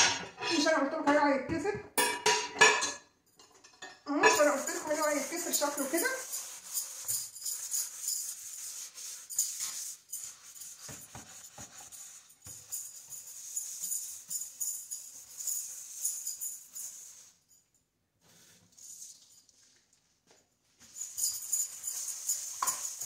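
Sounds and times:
steel pad scrubbing a metal sink: 4.2 - 17.4, 20.8 - 23.0.

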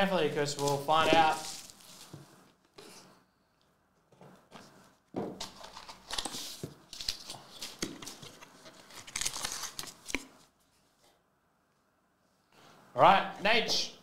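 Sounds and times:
card packaging rustling and crinkling: 0.3 - 3.0, 5.2 - 10.5.

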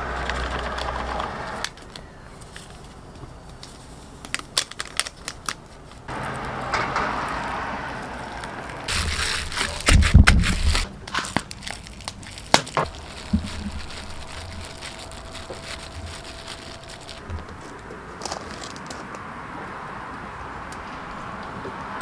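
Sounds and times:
clicks and crackles: 0.1 - 6.1, 8.4 - 19.2.

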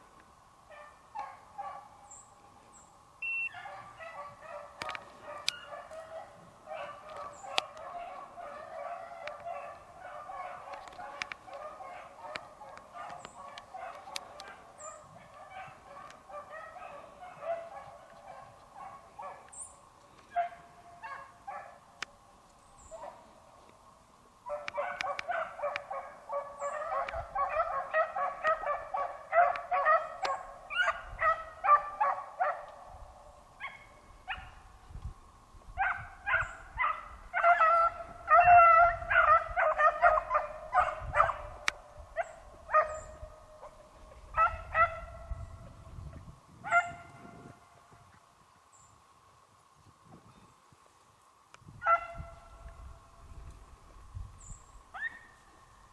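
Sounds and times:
dogs baying: 3.5 - 19.5, 24.5 - 32.8, 35.8 - 45.5.

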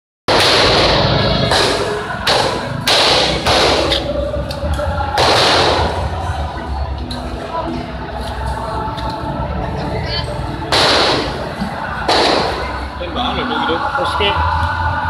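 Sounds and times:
loud bangs with echo: 0.3 - 4.3, 5.0 - 6.3, 10.6 - 13.0.

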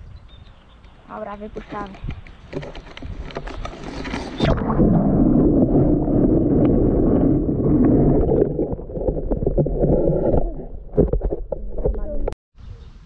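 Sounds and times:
muffled underwater churning: 2.5 - 12.4
water splashing: 2.5 - 12.4.

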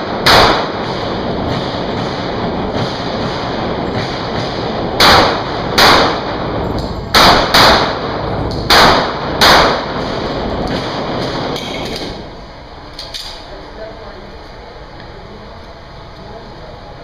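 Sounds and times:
pistol shots echoing indoors: 0.0 - 12.2.

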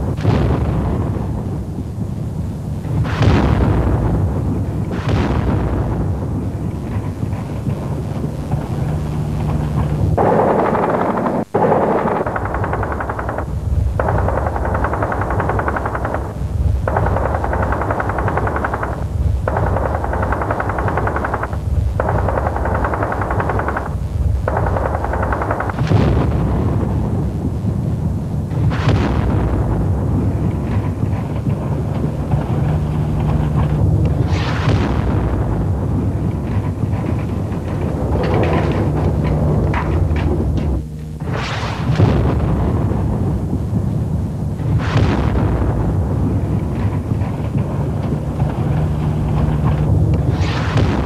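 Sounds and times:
sharp bangs: 0.0 - 51.0
automatic gunfire bursts: 6.9 - 26.4.

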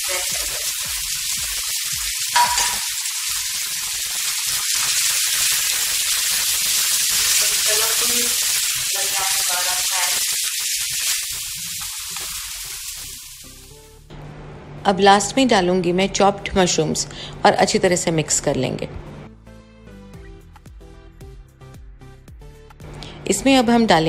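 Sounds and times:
vegetables sizzling in hot oil: 0.0 - 14.0.

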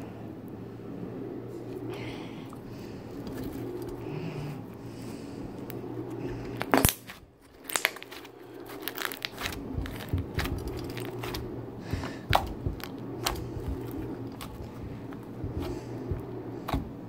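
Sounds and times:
slime popping and crackling: 6.7 - 11.4.

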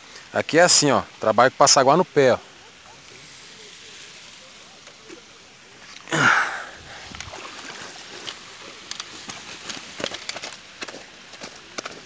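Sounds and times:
fish slapping in a net: 7.1 - 8.4
net rustling and clicks: 7.2 - 12.0.

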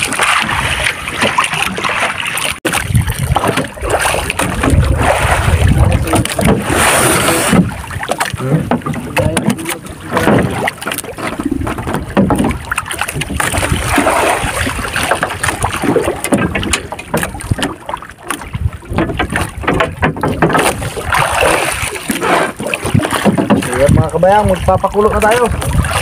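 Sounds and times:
knocks and bumps on wooden boat: 0.0 - 26.0
water sloshing: 0.0 - 26.0
wind noise on microphone: 2.7 - 9.4, 11.4 - 17.7, 18.4 - 21.9, 22.8 - 26.0.

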